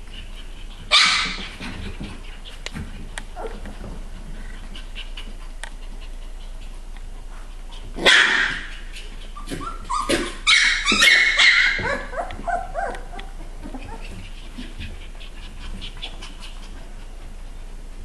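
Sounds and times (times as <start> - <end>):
puppies yipping and squealing: 0.7 - 2.6, 8.1 - 16.7.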